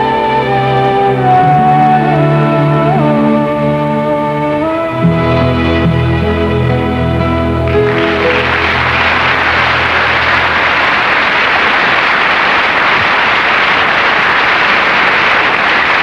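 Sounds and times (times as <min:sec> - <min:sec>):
low music notes: 0:00.0 - 0:10.9
audience applauding: 0:07.7 - 0:16.0.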